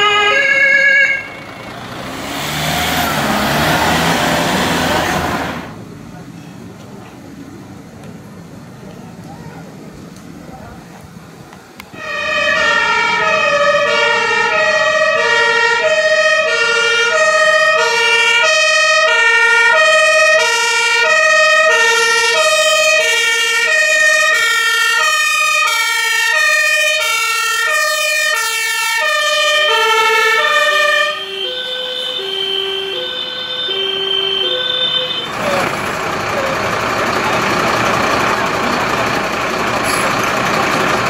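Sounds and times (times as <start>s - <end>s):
fire engine two-tone siren: 0.0s - 5.8s, 11.9s - 41.0s.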